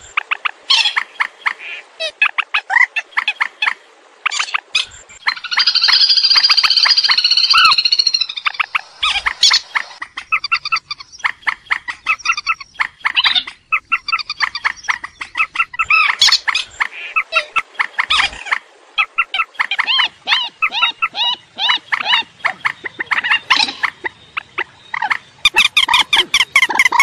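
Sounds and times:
swamphen squealing calls: 0:00.2 - 0:27.0
fast chattering bird notes: 0:25.0 - 0:27.0.

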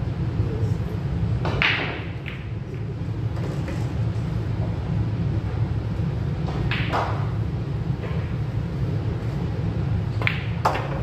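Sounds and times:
pool hall low hum: 0:00.0 - 0:11.0
billiard balls clacking: 0:01.4 - 0:04.0, 0:06.4 - 0:07.4, 0:10.1 - 0:11.0.

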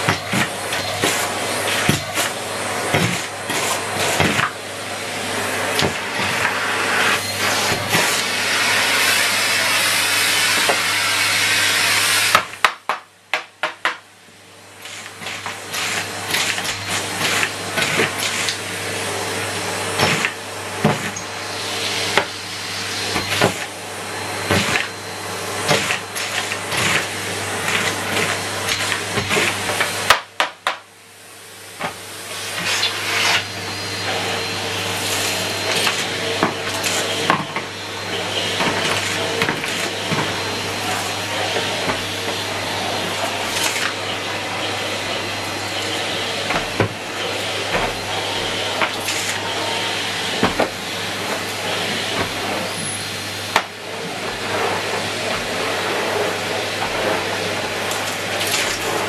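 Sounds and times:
vacuum cleaner running: 0:00.0 - 0:59.0.

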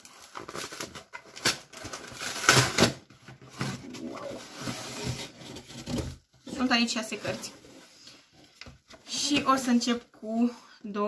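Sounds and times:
packaging rustling and crinkling: 0:00.0 - 0:06.3.

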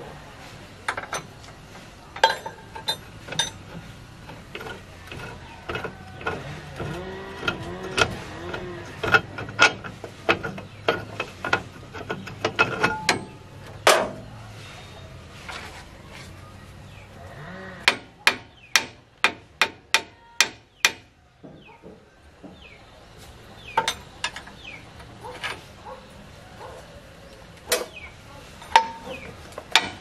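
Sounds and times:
metal tools clinking and knocking: 0:00.9 - 0:14.2, 0:23.7 - 0:26.0, 0:28.6 - 0:30.0.

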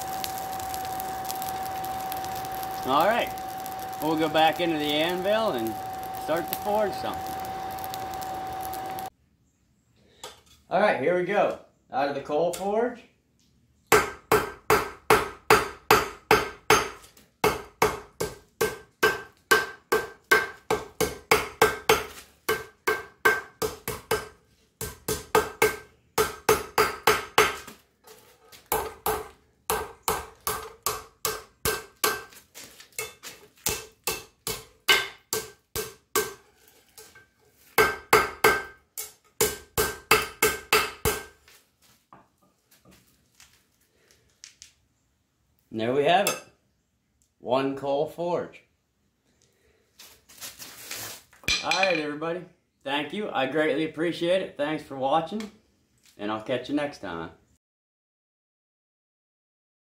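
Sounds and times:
hammer striking steel on anvil: 0:04.8 - 0:09.1, 0:13.9 - 0:27.6, 0:28.7 - 0:32.3, 0:33.0 - 0:36.4, 0:37.8 - 0:41.3, 0:51.5 - 0:52.0
anvil ringing: 0:51.5 - 0:52.0.

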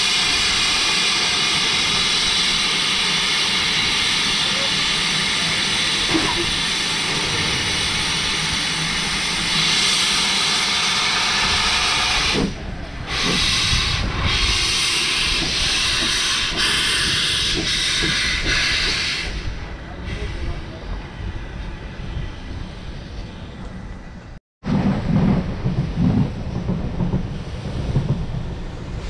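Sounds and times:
steam locomotive hissing: 0:00.0 - 0:23.1.

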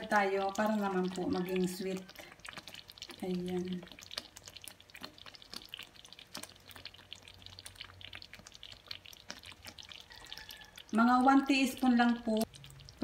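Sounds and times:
sauce bubbles popping: 0:00.0 - 0:13.0.

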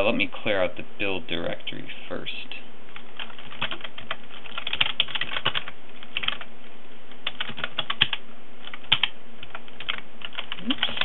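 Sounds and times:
typing on a computer keyboard: 0:03.2 - 0:06.5, 0:07.2 - 0:11.0.

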